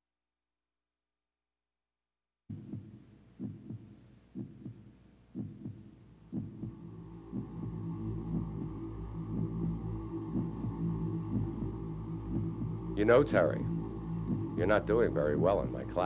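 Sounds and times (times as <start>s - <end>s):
heartbeat double thump: 2.5s - 15.8s
low droning hum: 6.4s - 16.0s.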